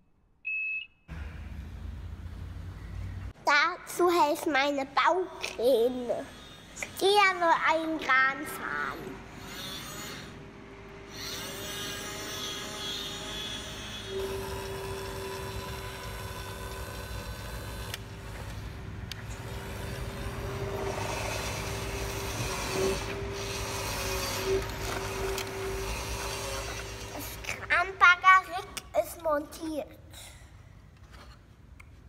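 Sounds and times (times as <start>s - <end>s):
toy electric motor whining: 5.4s - 10.4s, 11.1s - 27.7s
mechanical rubbing and rattling: 9.3s - 10.4s, 11.1s - 27.8s.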